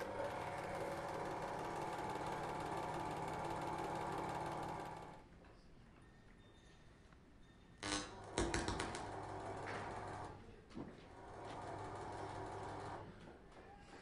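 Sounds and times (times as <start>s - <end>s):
film projector rattling: 0.0s - 5.2s, 8.9s - 10.4s, 11.2s - 13.0s.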